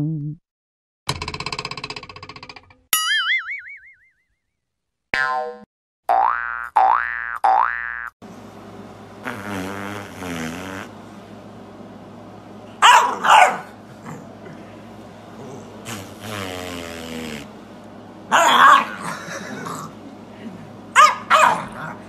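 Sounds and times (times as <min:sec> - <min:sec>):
puppy barking: 0:12.8 - 0:13.8, 0:18.3 - 0:19.0, 0:21.0 - 0:22.0
puppy growling: 0:13.9 - 0:17.6, 0:18.3 - 0:20.0.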